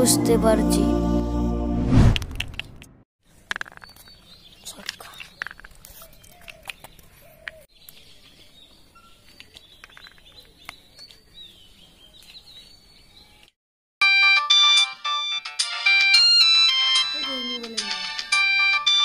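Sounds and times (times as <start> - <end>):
faint birds chirping: 3.3 - 13.6
phone ringtone beeping melody: 14.0 - 19.0.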